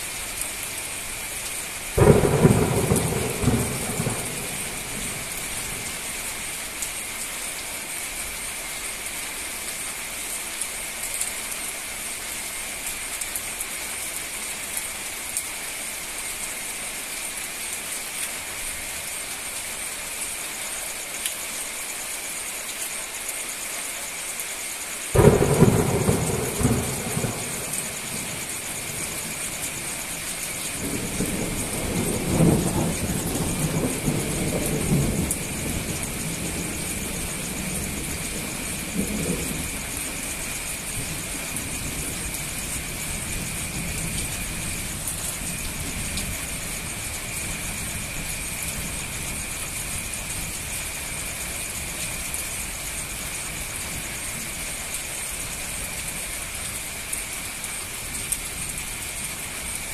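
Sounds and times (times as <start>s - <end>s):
heavy rain on road and foliage: 0.0s - 59.9s
thunder clap and rumble: 2.0s - 6.4s, 25.2s - 44.9s.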